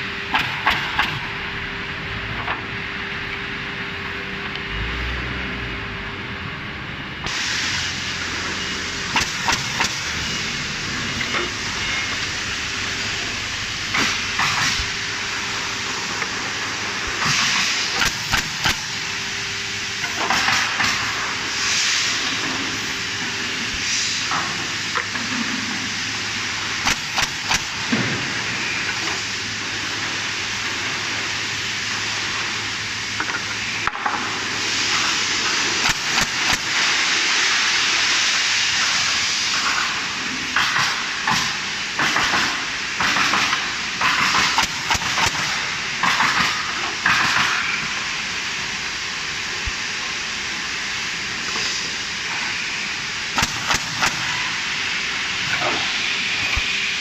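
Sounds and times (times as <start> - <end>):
air hiss and machine noise: 0.0 - 57.0
pneumatic nailers firing: 0.3 - 1.3, 9.1 - 10.4, 13.9 - 15.0, 17.1 - 19.1, 20.0 - 21.4, 26.8 - 30.2, 33.3 - 36.9, 39.6 - 47.9, 53.3 - 54.6.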